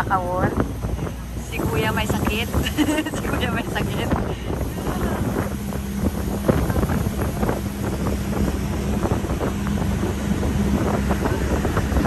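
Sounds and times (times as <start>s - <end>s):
boat engine running: 0.0s - 12.0s
wind buffeting microphone: 0.0s - 12.0s.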